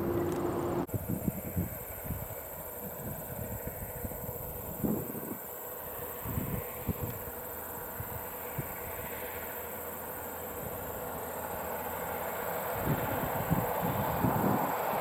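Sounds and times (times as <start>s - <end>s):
wind buffeting microphone: 0.0s - 5.5s, 6.2s - 9.1s, 12.7s - 15.0s
truck diesel engine rumble: 0.0s - 15.0s.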